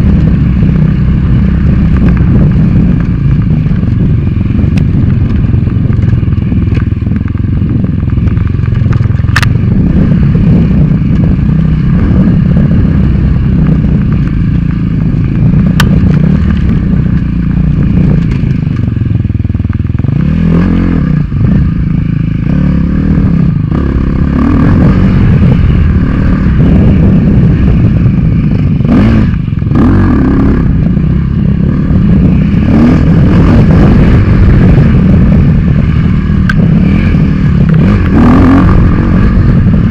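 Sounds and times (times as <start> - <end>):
dirt bike engine revving: 9.2 - 19.0, 20.0 - 39.9.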